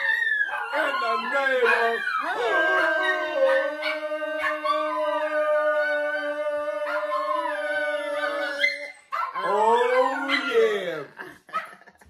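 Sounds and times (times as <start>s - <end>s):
dog howling: 0.0s - 11.0s.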